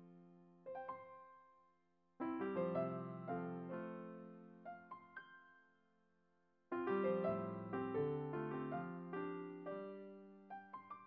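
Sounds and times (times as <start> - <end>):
piano chords: 2.2 - 5.6, 6.7 - 11.0.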